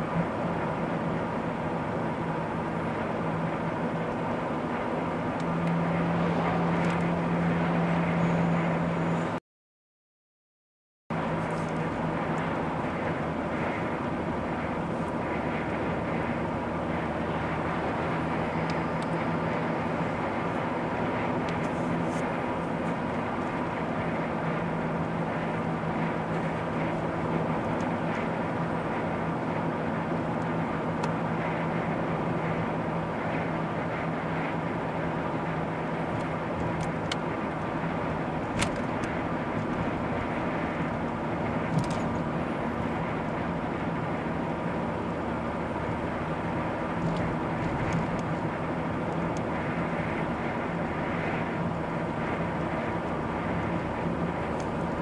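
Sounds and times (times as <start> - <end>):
car engine drone: 0.0 - 9.4, 11.1 - 55.0.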